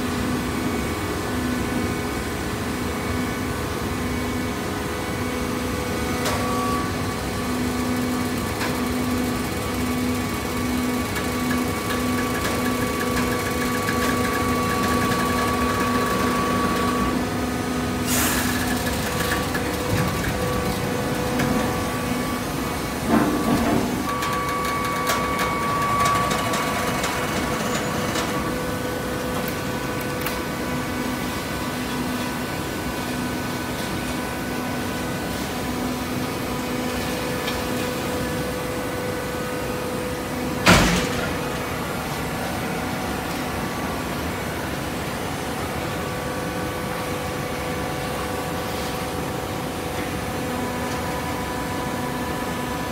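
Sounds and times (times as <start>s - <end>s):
hydraulic baler humming: 6.2s - 31.5s
sharp machine clack: 11.1s - 17.0s, 24.1s - 28.4s.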